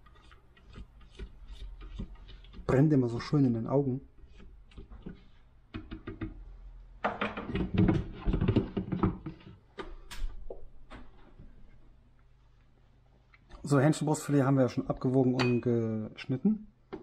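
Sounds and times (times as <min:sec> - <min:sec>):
spatula scraping a metal bowl: 0:00.0 - 0:05.5
bowl knocking and clinking: 0:15.4 - 0:15.7.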